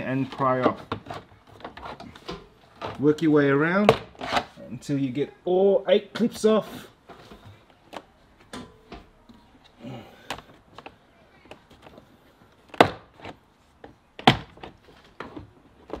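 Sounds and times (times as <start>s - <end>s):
light clicks and handling noise: 7.0s - 14.0s.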